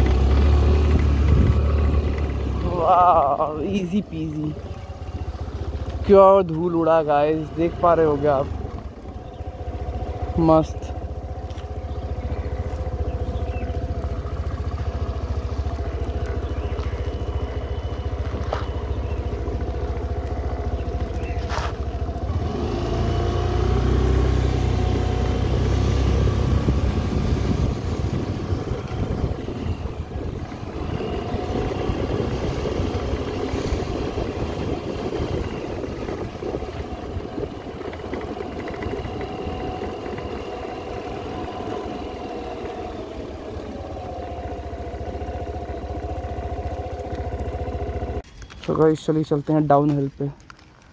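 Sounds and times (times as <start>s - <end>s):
scooter engine running: 0.0s - 50.9s.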